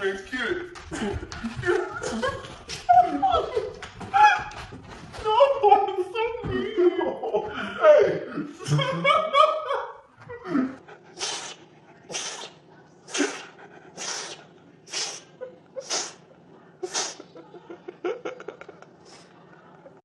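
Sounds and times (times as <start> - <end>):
kitten sneezing: 11.2 - 17.3.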